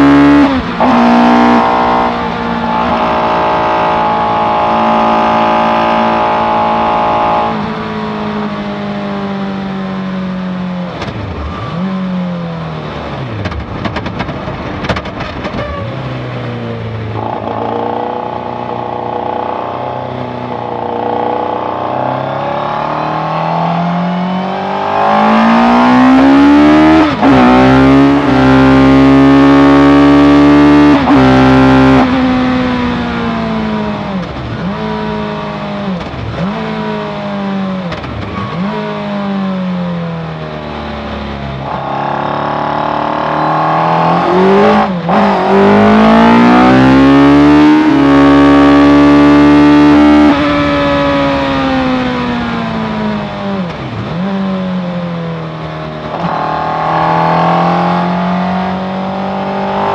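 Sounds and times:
engine revving hard: 20.8s - 33.9s, 41.6s - 52.8s, 56.1s - 59.9s.

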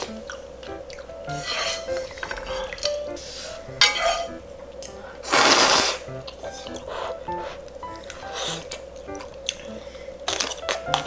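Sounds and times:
soft background music: 0.0s - 11.0s.

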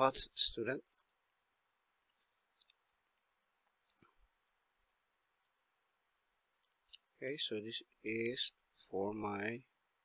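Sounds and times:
computer mouse clicks: 0.8s - 2.8s, 3.8s - 4.6s, 5.4s - 5.6s, 6.5s - 7.1s.

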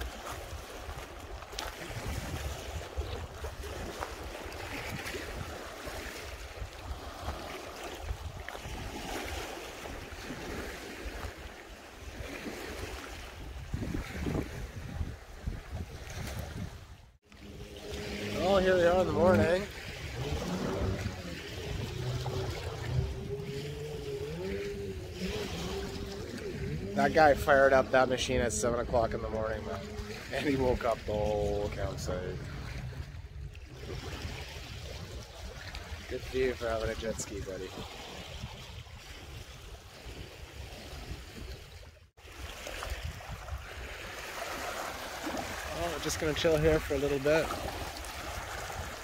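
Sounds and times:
wind noise: 1.8s - 7.4s, 13.2s - 17.0s
low rumble on microphone: 13.5s - 36.1s
watercraft engine droning: 17.2s - 38.3s, 43.6s - 49.0s.

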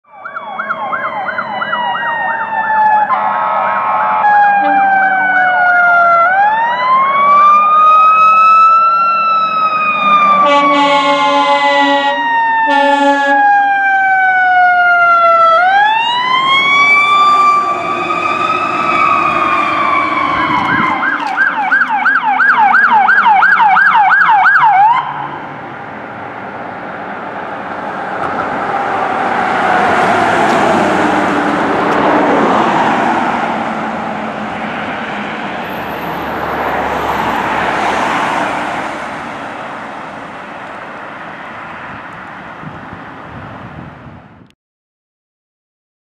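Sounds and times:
fire engine siren wailing: 0.0s - 44.2s
engine and road noise: 0.0s - 44.5s
fire engine horn blasts: 3.1s - 5.9s, 10.2s - 13.6s.

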